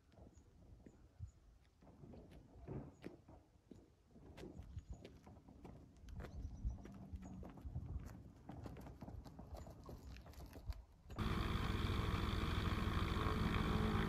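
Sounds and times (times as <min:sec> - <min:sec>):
footsteps on tarmac: 0:00.0 - 0:11.2
aircraft engine running: 0:11.2 - 0:14.0.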